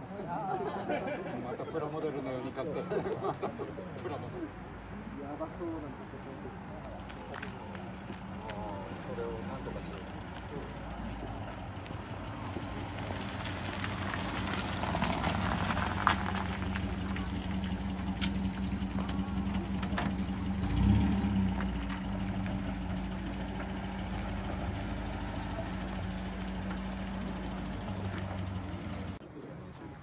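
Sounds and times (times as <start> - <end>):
car engine running at low revs: 7.8 - 29.2.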